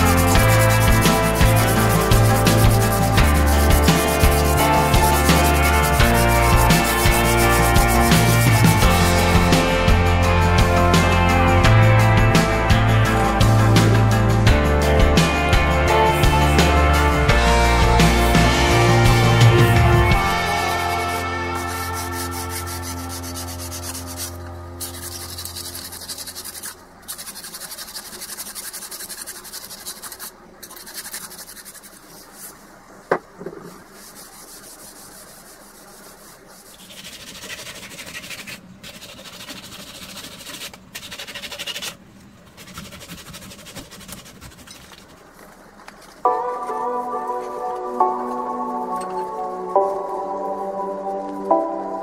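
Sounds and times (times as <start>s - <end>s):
file rasping on steel blade: 0.0s - 8.9s, 20.6s - 32.4s, 34.0s - 42.0s
background music: 0.0s - 26.5s, 46.2s - 52.0s.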